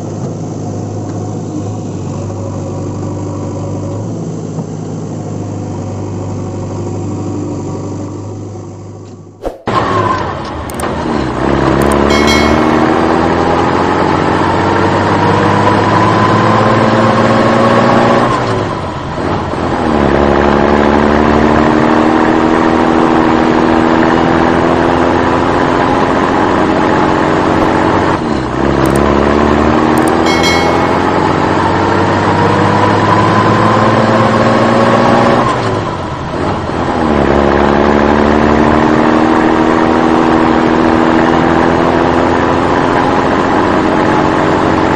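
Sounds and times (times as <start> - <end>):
vehicle engine accelerating: 9.4 - 44.9.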